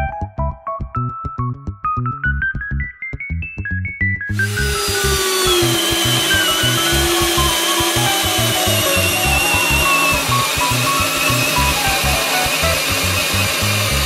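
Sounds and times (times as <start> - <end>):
background music with beat: 0.0 - 14.0
drill boring into wood: 4.3 - 14.0.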